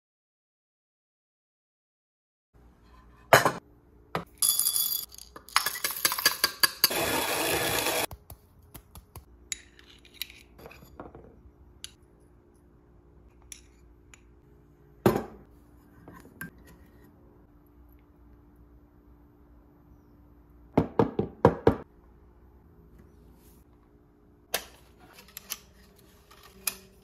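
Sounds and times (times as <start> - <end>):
steady harsh grinding noise: 6.9 - 8.1.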